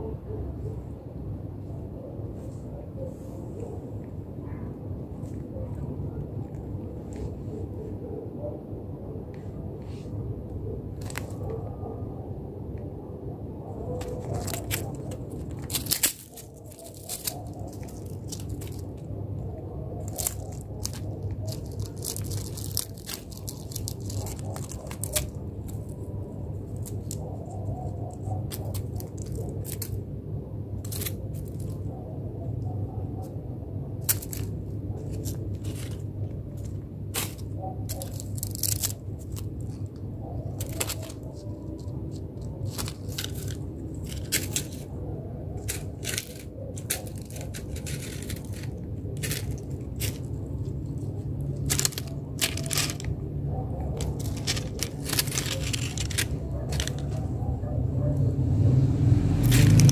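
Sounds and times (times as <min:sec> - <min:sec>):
cat claws clicking on tiles: 0:20.0 - 0:30.0, 0:37.1 - 0:44.9, 0:45.6 - 0:53.2, 0:53.8 - 0:57.2, 0:59.4 - 0:59.9.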